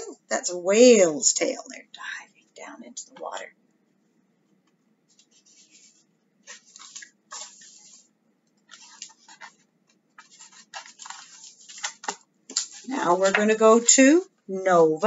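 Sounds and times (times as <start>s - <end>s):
book pages rustling: 4.5s - 14.1s.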